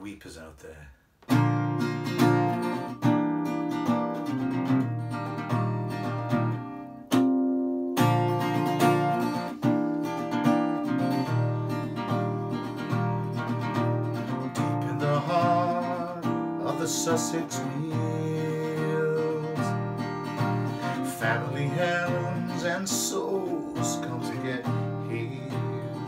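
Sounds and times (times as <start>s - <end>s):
acoustic guitar strumming: 1.2s - 26.0s.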